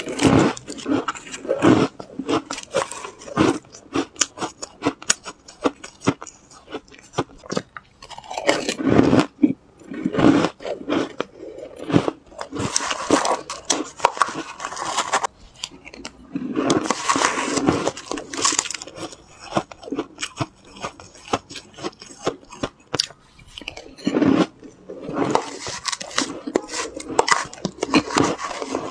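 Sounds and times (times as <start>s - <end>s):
shaved ice crunched and chewed: 0.0s - 28.9s
spoon scraping ice in bowl: 12.3s - 15.3s, 16.4s - 19.2s, 25.0s - 28.9s.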